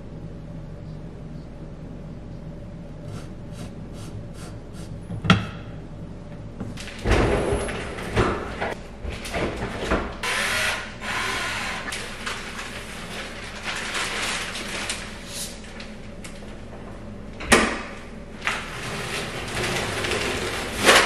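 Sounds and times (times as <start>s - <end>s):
low hum: 0.0s - 9.0s
scraping and rattling of tools: 18.4s - 21.0s.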